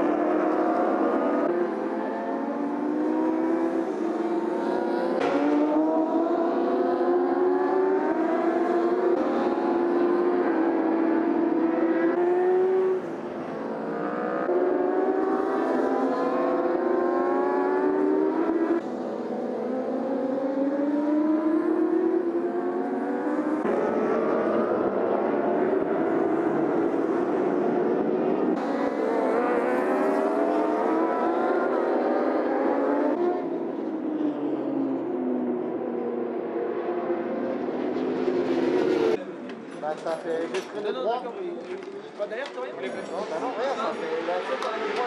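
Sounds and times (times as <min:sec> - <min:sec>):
superbike engines revving high: 0:00.0 - 0:33.6.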